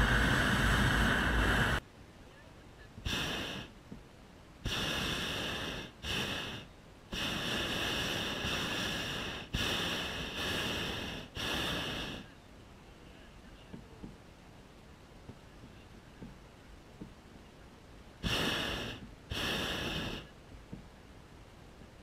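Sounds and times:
propane burner blasts: 0:00.0 - 0:01.8, 0:03.0 - 0:03.7, 0:04.6 - 0:12.2, 0:18.2 - 0:20.3.

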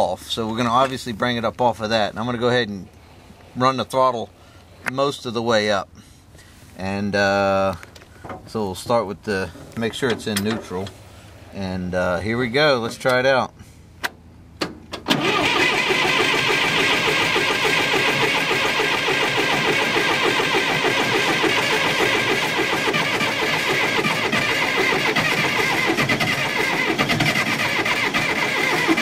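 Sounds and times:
starter cranking engine: 0:15.0 - 0:29.0.

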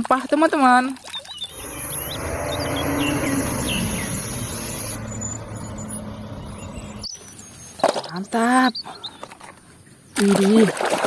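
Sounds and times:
diesel engine droning: 0:01.4 - 0:07.8.

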